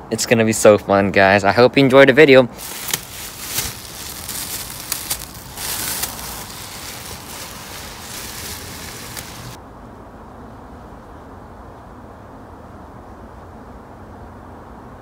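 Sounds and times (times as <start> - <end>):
plastic covers crinkling: 2.6 - 9.6.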